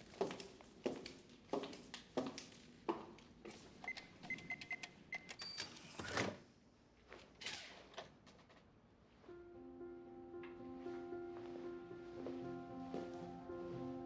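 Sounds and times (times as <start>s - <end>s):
keypad beeps: 3.9s - 5.7s
footsteps on hard floor: 10.8s - 14.0s.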